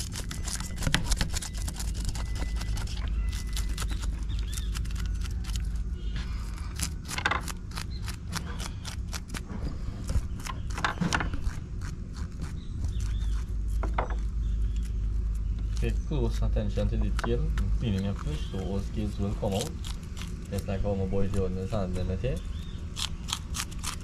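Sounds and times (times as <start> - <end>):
fish scaler scraping scales: 0.0 - 3.8
steady low rumble: 0.0 - 24.0.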